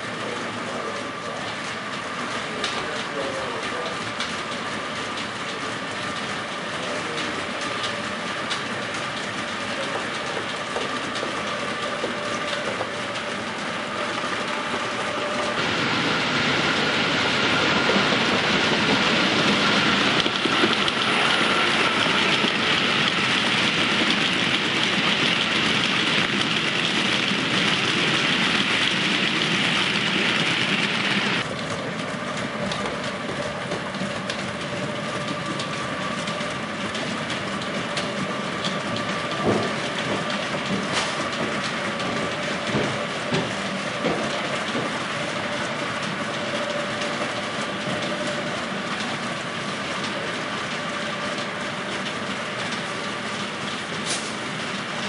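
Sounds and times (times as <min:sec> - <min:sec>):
model train motor hum: 0:00.0 - 0:31.9
wheels clicking over rail joints: 0:00.0 - 0:55.0.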